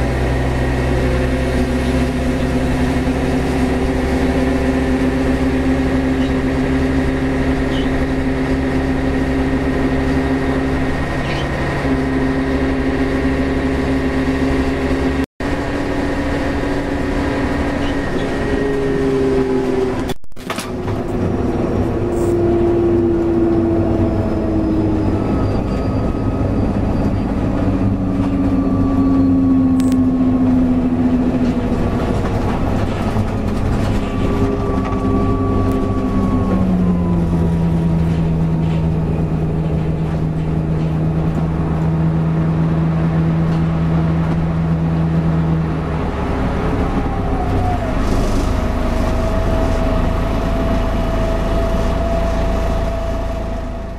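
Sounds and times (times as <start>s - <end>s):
bus engine and gearbox whine: 0.0s - 53.9s.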